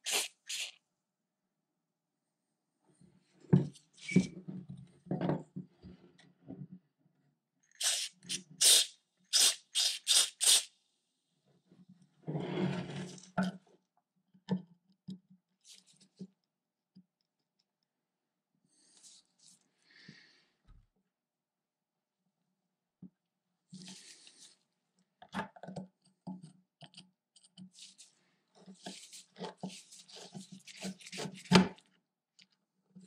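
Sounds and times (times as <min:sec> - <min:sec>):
aerosol spray hisses: 0:00.0 - 0:00.7, 0:07.8 - 0:10.7.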